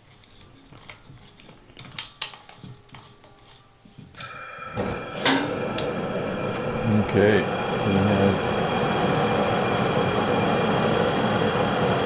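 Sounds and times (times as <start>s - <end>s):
gas hissing: 4.1s - 12.0s
low burner rumble: 4.1s - 12.0s.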